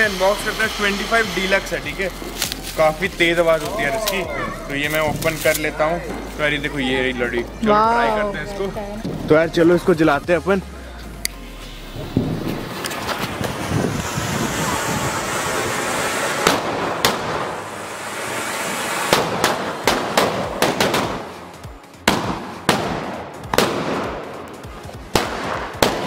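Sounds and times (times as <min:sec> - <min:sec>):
firecrackers fizzing crackle: 0:00.0 - 0:07.6, 0:11.9 - 0:26.0
firecrackers loud bangs: 0:11.9 - 0:26.0.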